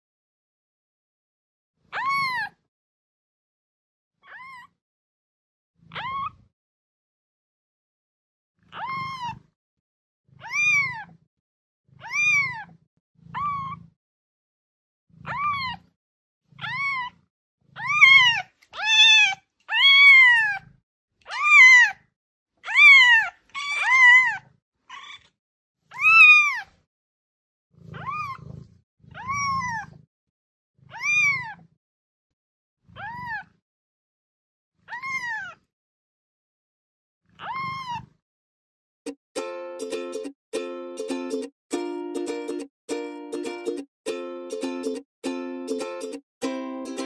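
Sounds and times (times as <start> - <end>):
kitten meowing: 1.9 - 2.6, 4.2 - 4.7, 5.9 - 6.4, 8.7 - 9.4, 10.4 - 11.1, 12.0 - 12.7, 13.3 - 13.8, 15.2 - 15.9, 16.6 - 17.2, 17.8 - 20.6, 21.3 - 22.0, 22.6 - 25.3, 25.9 - 26.7, 27.9 - 28.5, 29.1 - 30.0, 30.9 - 31.6, 33.0 - 33.5, 34.9 - 35.6, 37.4 - 38.1.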